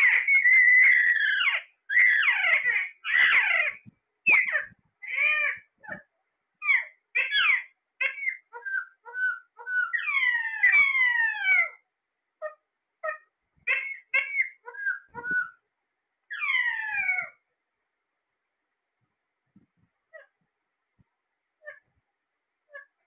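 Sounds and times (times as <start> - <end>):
parakeets squawking and whistling: 0.0 - 6.0, 6.6 - 11.8, 12.4 - 15.6, 16.3 - 17.4.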